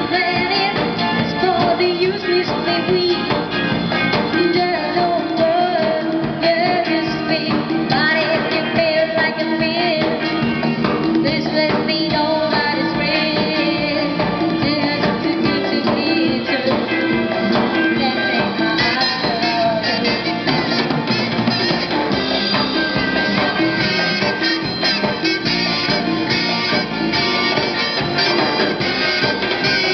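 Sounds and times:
person singing: 0.0s - 29.9s
pop-rock band playing: 0.0s - 29.9s.

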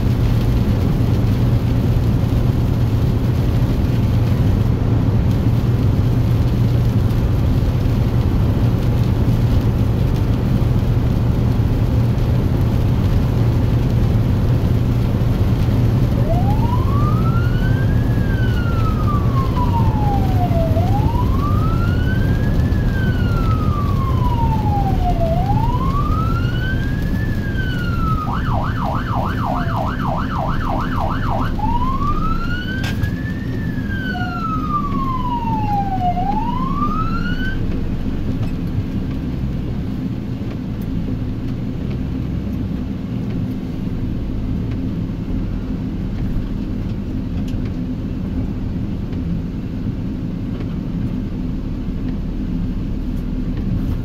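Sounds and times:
engine and road rumble: 0.0s - 54.0s
ambulance siren wailing and yelping: 16.0s - 37.8s.

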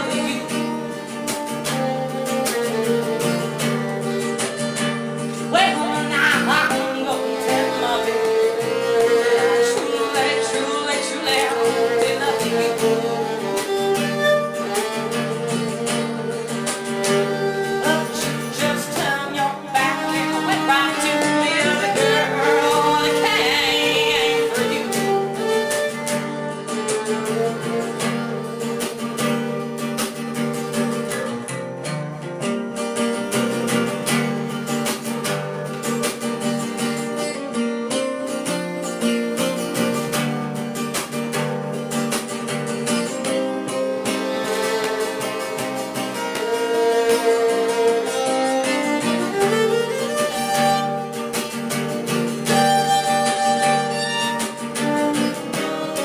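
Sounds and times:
woman singing: 0.0s - 1.3s, 5.4s - 13.8s, 17.0s - 28.3s
acoustic guitar: 0.0s - 56.0s
fiddle: 0.0s - 56.0s.

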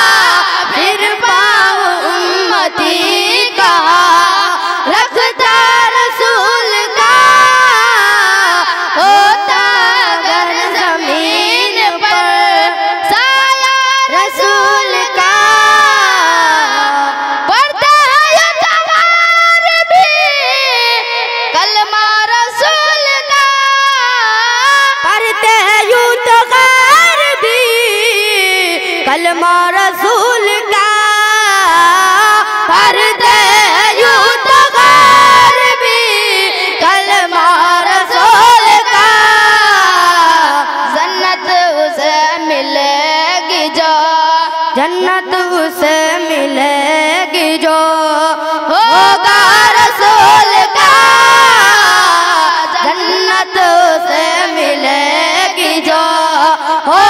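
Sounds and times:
boys singing into microphones: 0.0s - 57.0s.

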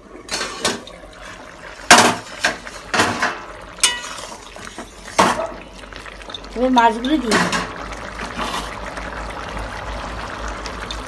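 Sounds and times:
curry bubbling in pan: 0.0s - 11.0s
metal lid and ladle clanking: 1.9s - 4.4s.

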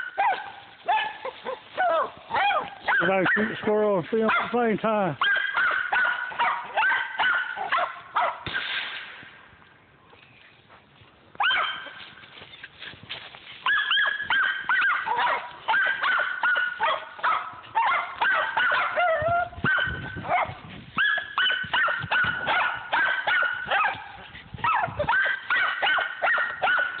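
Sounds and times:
dogs barking excitedly: 0.0s - 8.4s, 11.4s - 12.0s, 13.6s - 27.0s
dog whining: 18.4s - 19.9s.

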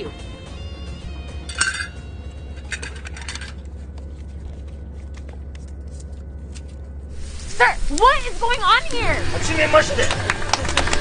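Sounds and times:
low hum: 0.5s - 11.0s.

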